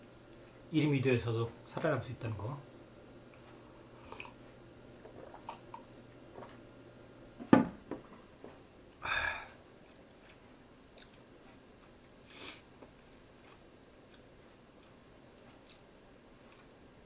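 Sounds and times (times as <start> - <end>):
soft hiss: 11.9 - 13.2.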